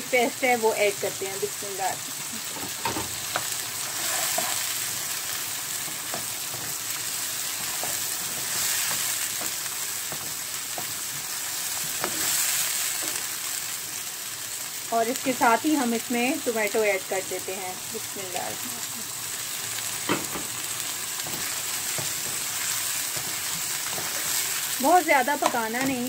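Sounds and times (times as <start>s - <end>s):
onions sizzling in hot oil: 0.0s - 26.0s
wooden spoon tapping and scraping pan: 7.5s - 11.2s, 21.2s - 24.5s, 25.2s - 26.0s.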